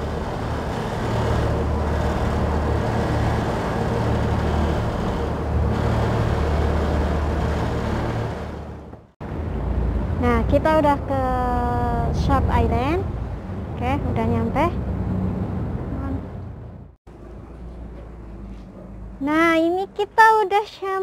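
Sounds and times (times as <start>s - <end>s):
boat engine droning: 0.0s - 20.4s.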